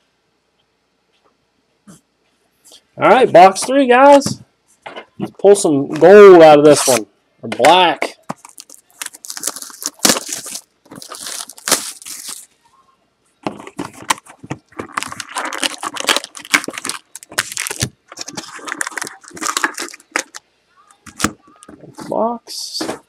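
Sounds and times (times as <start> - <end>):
card packs being handled: 7.6 - 12.5, 13.4 - 20.4
plastic wrap crinkling and tearing: 8.3 - 12.5, 13.5 - 20.4.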